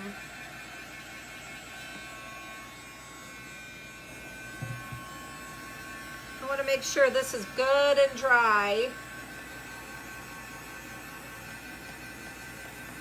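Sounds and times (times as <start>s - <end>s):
electrical hum with high whine: 0.0s - 13.0s
soft bump: 4.6s - 5.1s.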